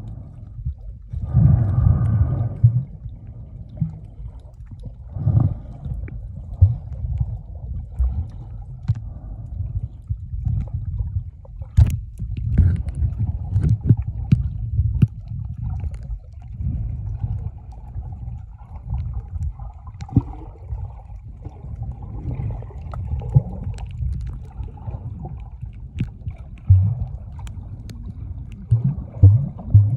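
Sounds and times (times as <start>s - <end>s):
muffled underwater rumble: 0.0s - 29.9s.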